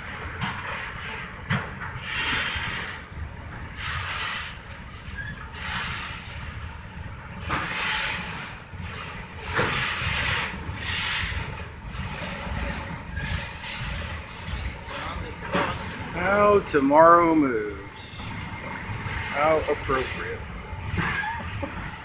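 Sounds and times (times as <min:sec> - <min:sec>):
low train rumble: 0:00.0 - 0:22.0
steel wheels hissing on rails: 0:00.0 - 0:22.0.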